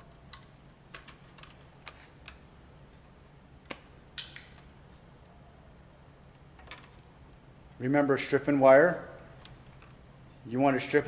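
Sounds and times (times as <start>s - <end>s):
wire stripper clicking and snipping: 3.1s - 4.7s.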